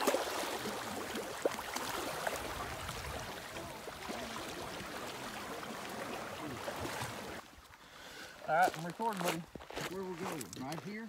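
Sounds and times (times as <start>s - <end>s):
water sloshing and splashing: 0.0s - 7.8s.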